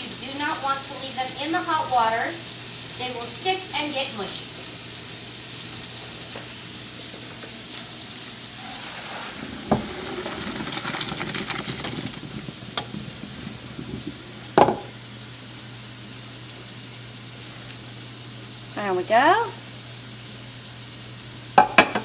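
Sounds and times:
meat sizzling in frying pan: 0.0s - 22.0s
water pouring into colander: 8.6s - 15.6s
metal pot clunking: 9.6s - 14.9s.

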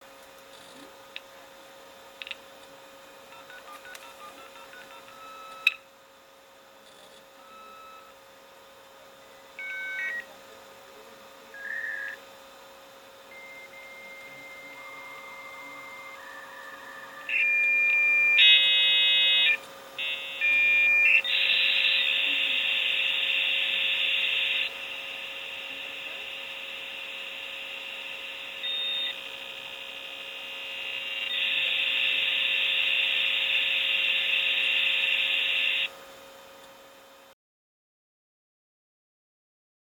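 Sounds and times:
dtmf dialing beeps: 3.3s - 5.7s, 7.4s - 8.1s, 9.6s - 10.3s, 13.3s - 29.2s, 29.8s - 35.9s
layered modem chords: 13.3s - 35.9s
modem handshake whistles and tones: 13.4s - 24.7s, 28.7s - 29.2s
loud rushing modem hiss: 15.1s - 28.6s.

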